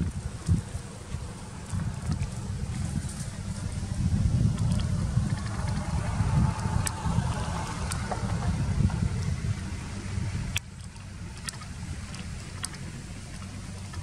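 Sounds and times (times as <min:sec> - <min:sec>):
wind rumble on microphone: 0:00.0 - 0:14.0
faint sharp clicks: 0:10.5 - 0:14.0.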